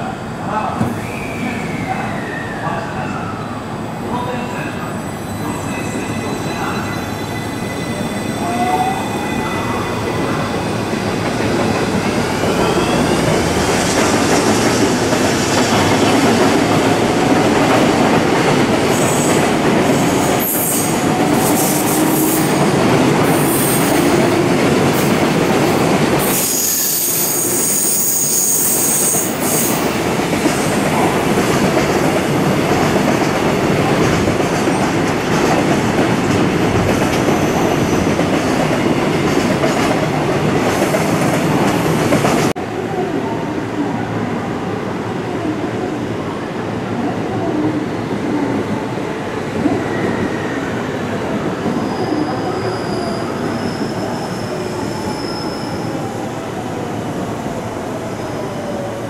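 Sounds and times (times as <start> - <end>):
high wheel squeals: 51.7 - 56.0.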